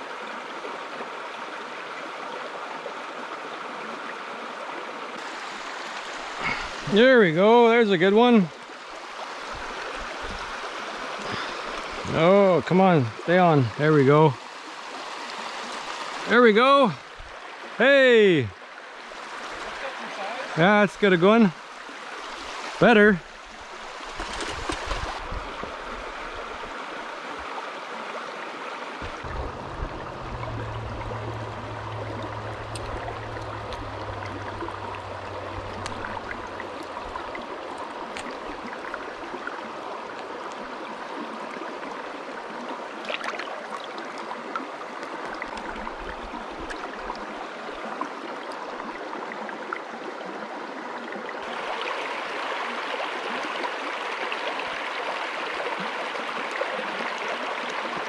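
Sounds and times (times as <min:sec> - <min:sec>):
creek running over stones: 0:00.0 - 0:58.0
low rumble: 0:29.0 - 0:37.4.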